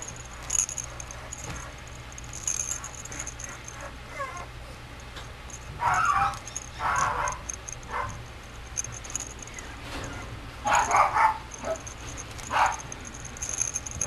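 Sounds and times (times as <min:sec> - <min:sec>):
puppy crying: 0:03.8 - 0:04.5, 0:05.8 - 0:08.1.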